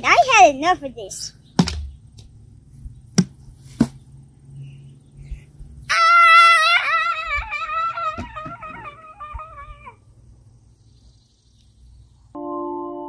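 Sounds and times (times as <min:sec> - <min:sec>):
sharp knocks: 0:01.6 - 0:02.0
boy screaming: 0:05.9 - 0:10.0.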